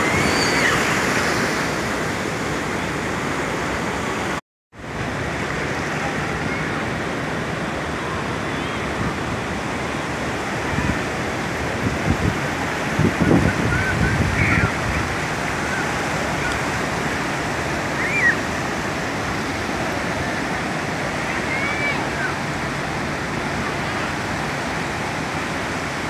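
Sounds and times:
small waves washing on a beach: 0:00.0 - 0:26.0.

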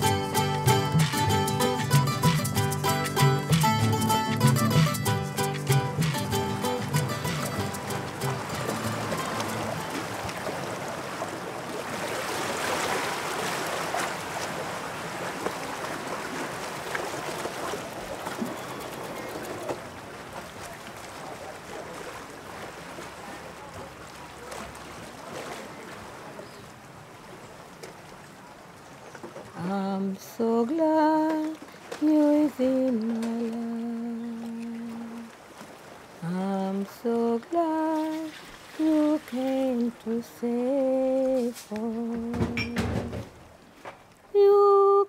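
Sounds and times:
sea waves rushing: 0:00.0 - 0:44.0.

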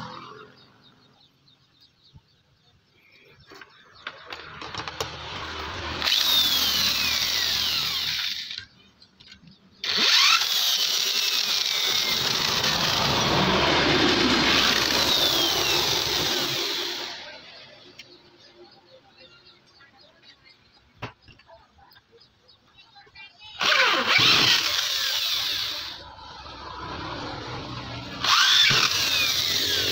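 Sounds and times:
electric drill drilling metal: 0:04.4 - 0:08.6, 0:09.8 - 0:17.2, 0:23.6 - 0:26.0, 0:28.2 - 0:29.9.

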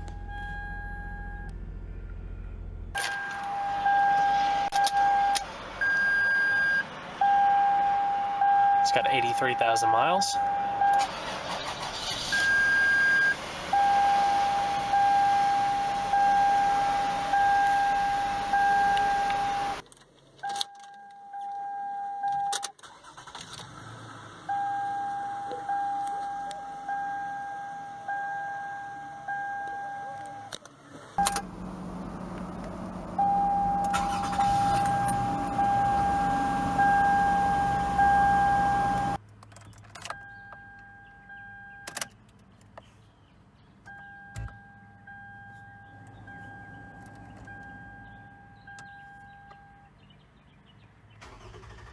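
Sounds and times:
dashboard warning chimes: 0:00.0 - 0:01.6, 0:03.0 - 0:11.1, 0:12.3 - 0:19.8, 0:20.4 - 0:23.3, 0:24.5 - 0:30.5, 0:33.2 - 0:39.2, 0:40.0 - 0:42.2, 0:43.8 - 0:50.0
car engine running: 0:00.0 - 0:05.8, 0:29.1 - 0:39.4, 0:42.2 - 0:50.5.

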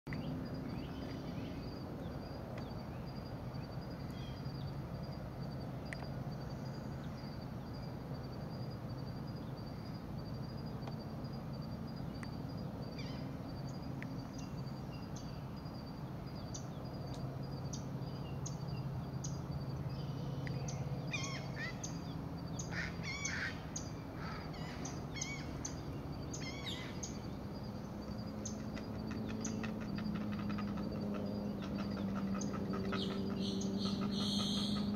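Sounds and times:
steady low hum: 0:00.1 - 0:34.9
heron chicks clicking calls: 0:28.4 - 0:34.9.

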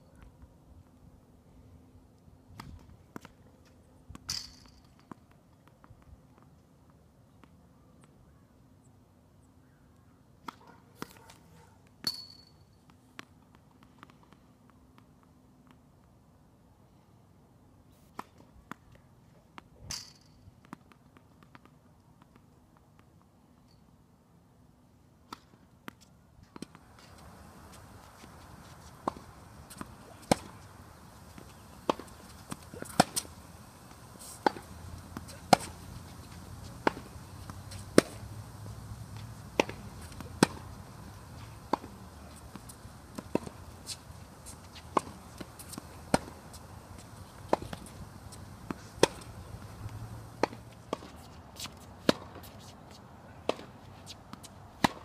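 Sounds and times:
low background noise: 0:00.0 - 0:55.0
tennis ball strikes and bounces: 0:25.3 - 0:55.0.

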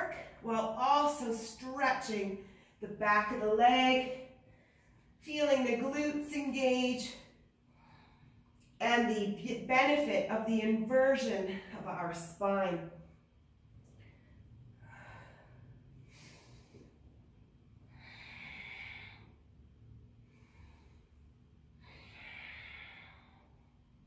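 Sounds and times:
woman breathing: 0:02.3 - 0:02.8, 0:04.0 - 0:05.2, 0:07.1 - 0:08.7, 0:13.8 - 0:24.0.

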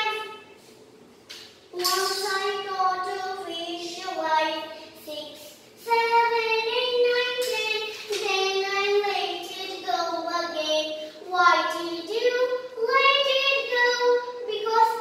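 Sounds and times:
girl singing: 0:00.0 - 0:00.5, 0:01.7 - 0:15.0.

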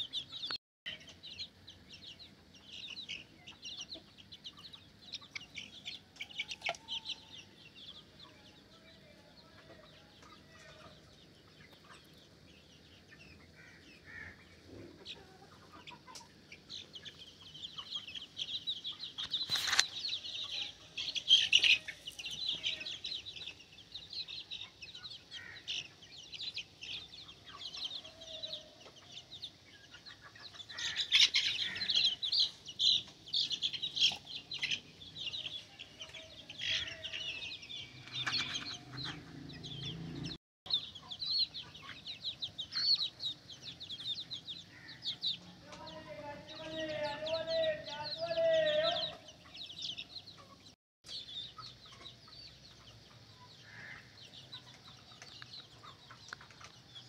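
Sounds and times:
chicks peeping: 0:00.0 - 0:57.0.

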